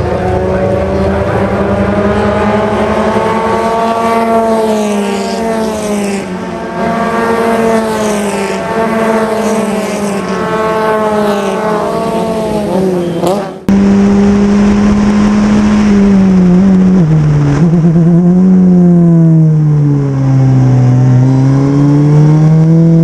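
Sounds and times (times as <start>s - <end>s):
race car engine running: 13.2s - 23.0s.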